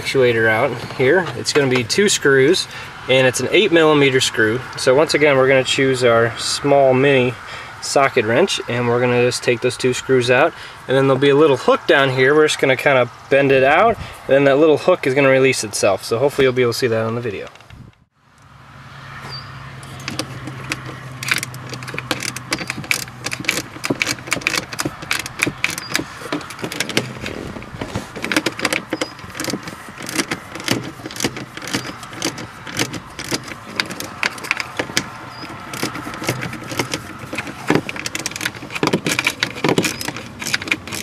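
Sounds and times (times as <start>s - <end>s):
metal on plastic clatter: 19.8s - 41.0s
socket ratchet clicking: 20.0s - 27.3s, 28.2s - 41.0s.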